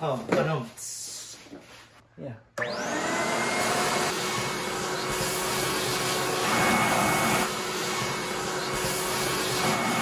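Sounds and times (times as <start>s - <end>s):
vacuum cleaner whining: 2.6s - 10.0s.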